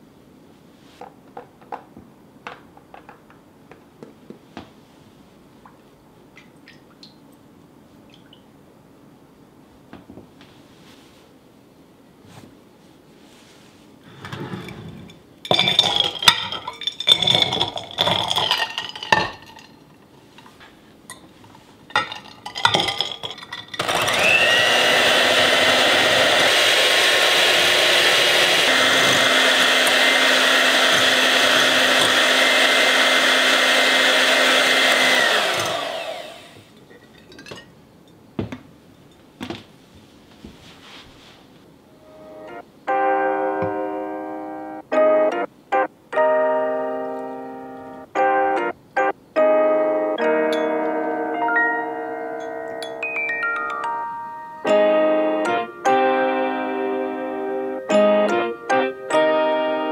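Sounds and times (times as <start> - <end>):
glassware clinking: 14.2 - 19.9, 21.1 - 24.2, 36.8 - 38.2
electric hand mixer whipping: 15.5 - 19.6, 22.0 - 36.7.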